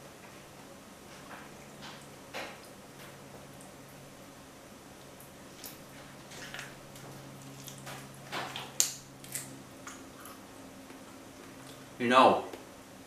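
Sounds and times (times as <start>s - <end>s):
chewing raw meat: 5.5s - 11.9s.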